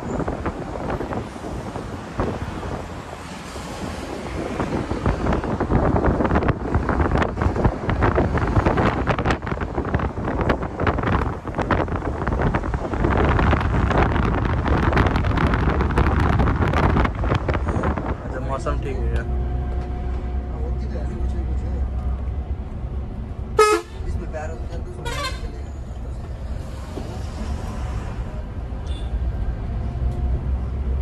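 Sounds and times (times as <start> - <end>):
wind buffeting microphone: 0.0 - 20.5
bus running on road: 0.0 - 31.0.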